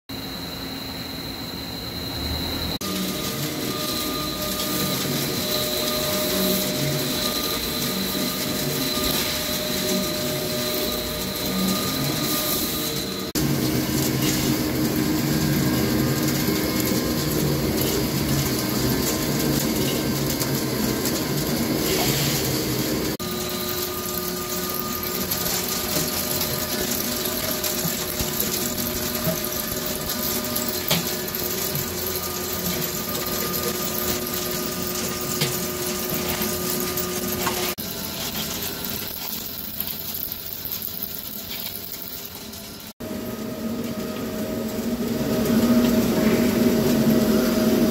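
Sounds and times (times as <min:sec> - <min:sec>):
lathe running: 0:02.5 - 0:38.9
metal cutting: 0:02.8 - 0:38.9.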